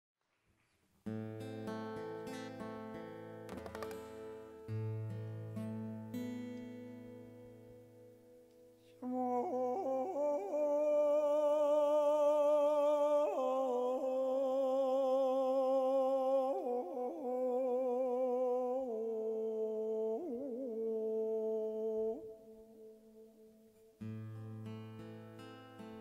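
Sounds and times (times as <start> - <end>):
man singing with vibrato: 8.8 - 24.1.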